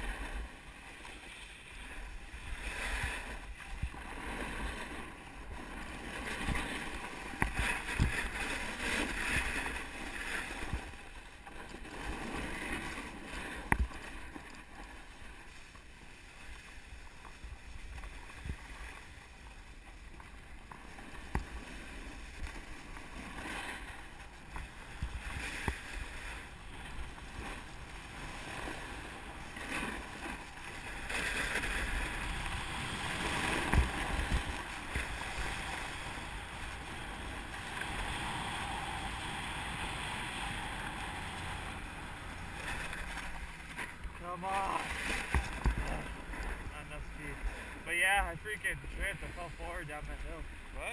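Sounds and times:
wind noise on microphone: 0:07.4 - 0:10.9, 0:31.3 - 0:41.8
snowboard scraping over snow: 0:11.7 - 0:14.2, 0:20.8 - 0:50.9.

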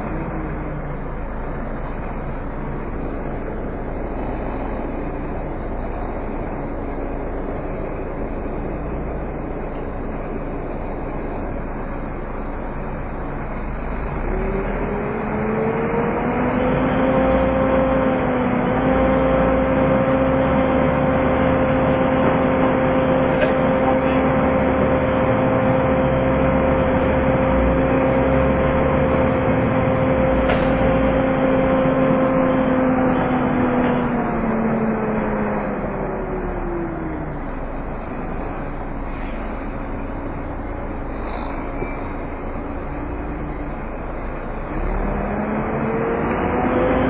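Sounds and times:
bus engine and road noise: 0:00.0 - 0:47.0
engine cooling fan whining: 0:00.0 - 0:47.0.

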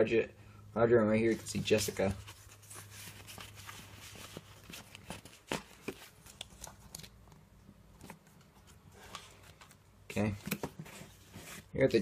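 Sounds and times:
paper rustling: 0:01.3 - 0:07.2.

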